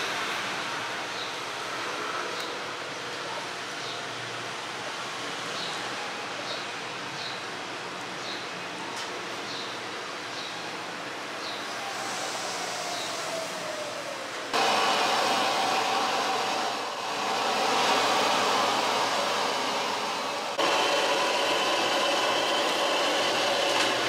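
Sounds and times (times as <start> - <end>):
kitchen equipment rushing: 14.6 - 24.0.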